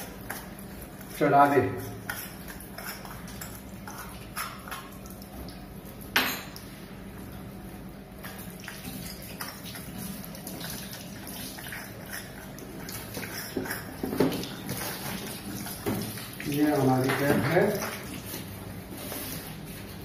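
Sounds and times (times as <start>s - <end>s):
water trickling into sink: 8.4s - 18.4s.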